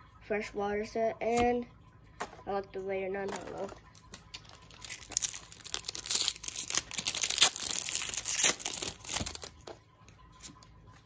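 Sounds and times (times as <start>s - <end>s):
foil wrapper crinkling and tearing: 3.3s - 9.7s.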